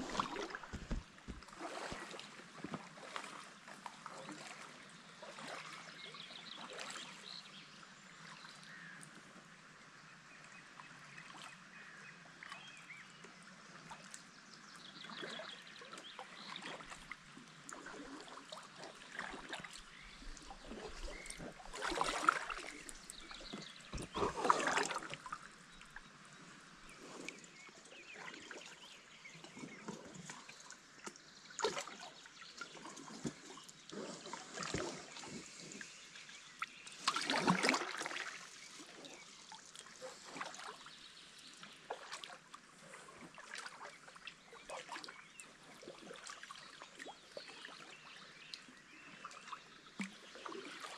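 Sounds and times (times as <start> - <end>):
water dripping off paddle blades: 0.0 - 4.6, 16.0 - 26.0, 36.6 - 40.8
paddle dipping through water: 0.0 - 7.8, 15.0 - 50.9.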